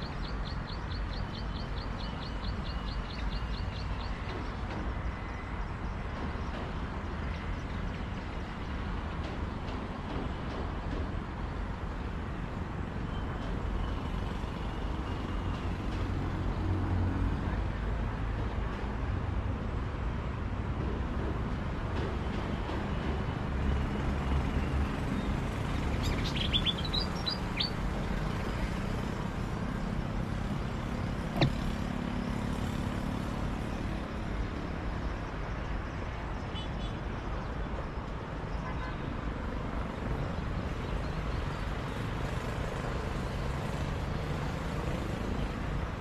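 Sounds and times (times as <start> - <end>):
bird chirping: 0.0 - 4.2, 25.2 - 27.9.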